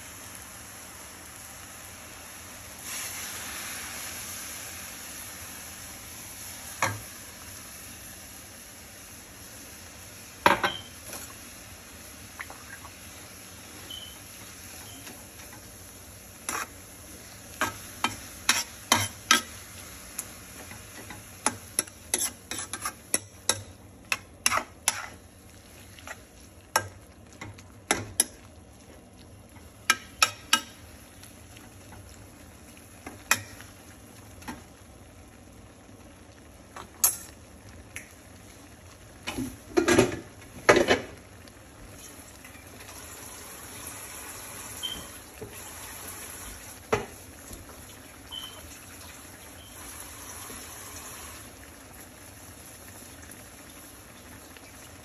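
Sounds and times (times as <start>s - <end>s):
food sizzling: 0.0s - 55.0s
metal spoon scraping skillet: 16.5s - 16.7s, 18.0s - 19.5s, 21.8s - 25.2s.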